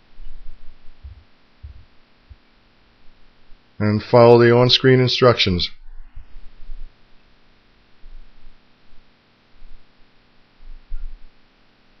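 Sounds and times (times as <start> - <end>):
background hiss and hum: 0.0 - 12.0.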